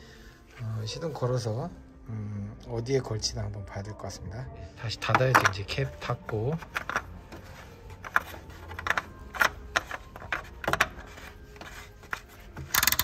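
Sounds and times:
plastic cap being screwed on: 5.1s - 13.0s.

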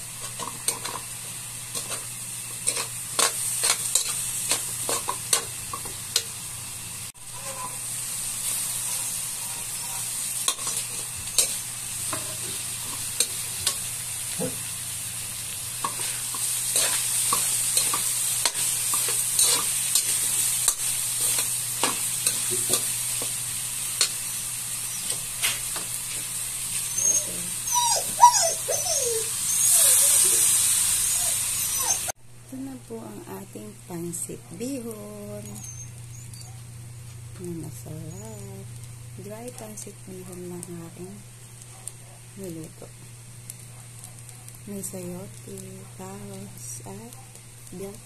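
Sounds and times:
food sizzling in a wok: 0.0s - 48.0s
metal spatula scraping a pan: 1.7s - 6.3s, 8.4s - 14.6s, 15.8s - 23.3s.

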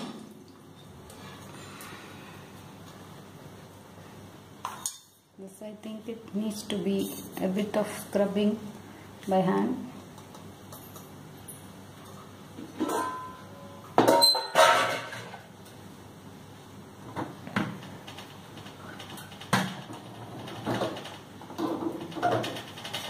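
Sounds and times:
metal vessels clattering: 12.7s - 15.4s.

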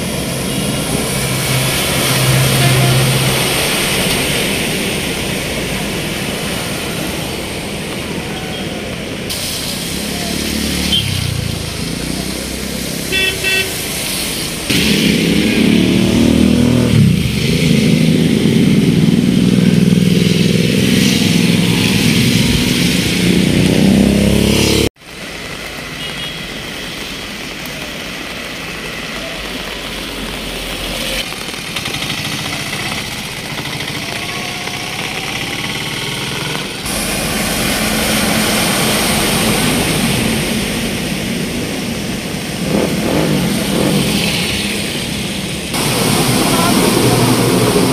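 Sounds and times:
flowing water: 0.0s - 47.9s
rumble of traffic: 0.0s - 47.9s
vehicle engines running: 0.0s - 47.9s
car horn beeps: 13.1s - 13.8s.

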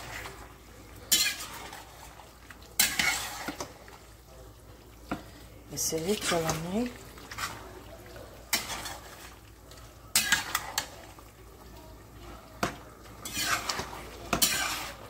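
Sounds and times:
spoon scraping and knocking pot: 2.8s - 3.7s, 8.5s - 9.4s, 10.1s - 11.0s, 12.6s - 15.0s.

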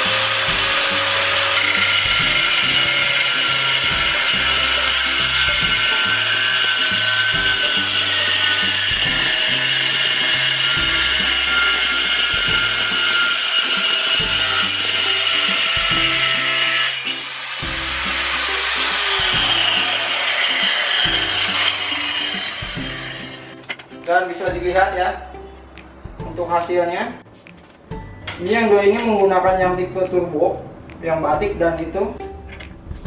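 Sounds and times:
angle grinder cutting tile: 0.0s - 23.9s.

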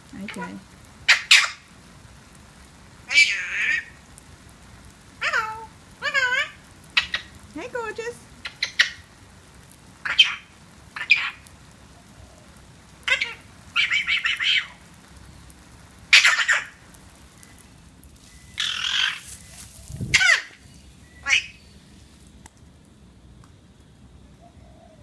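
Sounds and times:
parrot chattering and squawking: 0.2s - 1.7s, 3.1s - 4.0s, 5.2s - 7.4s, 8.4s - 9.1s, 10.0s - 11.4s, 13.0s - 14.8s, 16.1s - 16.8s, 18.6s - 19.3s, 20.0s - 20.6s, 21.2s - 21.6s.

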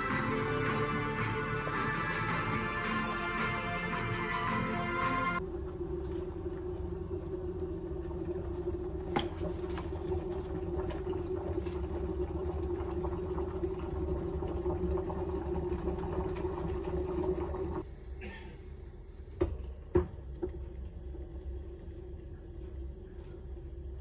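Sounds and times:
electric kettle rumbling: 5.4s - 18.0s, 18.7s - 24.0s.

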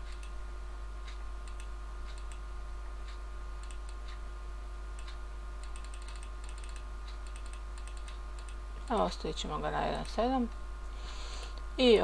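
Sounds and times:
steady electrical hum: 0.0s - 12.0s
mouse and keyboard clicks: 5.0s - 8.6s.

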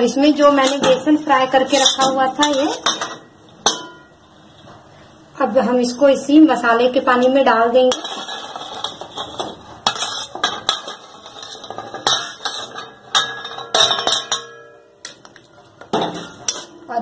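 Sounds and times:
spoon scraping a steel plate: 0.4s - 3.1s, 7.9s - 14.4s.

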